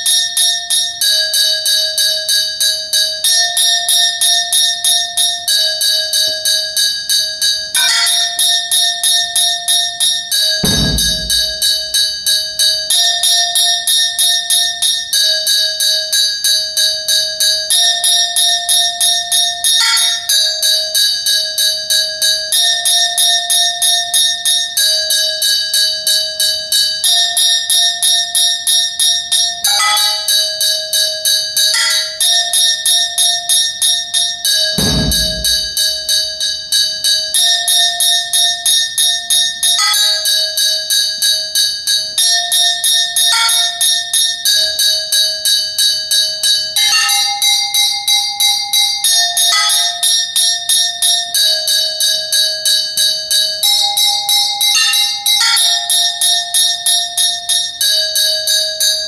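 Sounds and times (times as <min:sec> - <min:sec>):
bass drum thud: 0:10.6 - 0:12.3, 0:34.8 - 0:36.4
sticks striking ringing metal: 0:10.6 - 0:12.4, 0:29.7 - 0:30.4, 0:31.8 - 0:32.3, 0:34.8 - 0:36.4, 0:39.8 - 0:40.3, 0:43.3 - 0:43.8.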